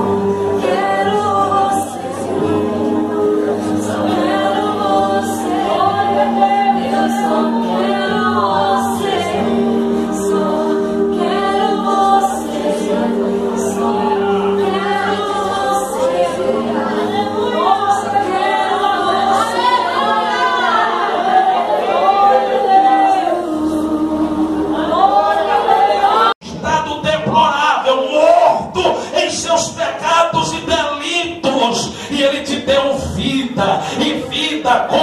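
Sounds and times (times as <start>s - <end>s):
choir singing worship song: 0.0s - 26.4s, 27.7s - 35.0s.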